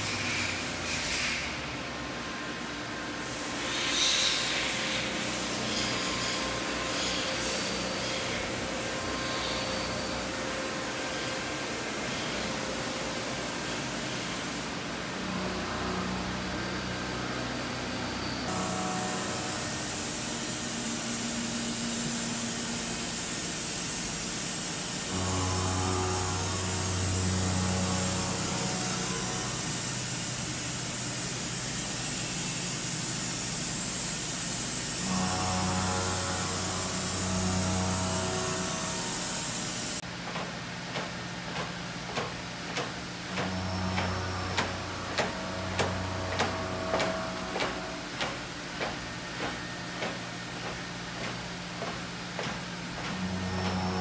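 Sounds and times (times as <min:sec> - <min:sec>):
machine hiss: 0:03.2 - 0:15.0, 0:15.7 - 0:54.0
low motor hum: 0:25.0 - 0:31.0, 0:35.0 - 0:54.0.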